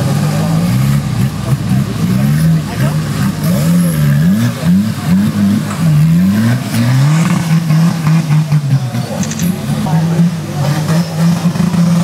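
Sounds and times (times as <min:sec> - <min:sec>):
off-road vehicle engine revving: 0:00.0 - 0:12.0.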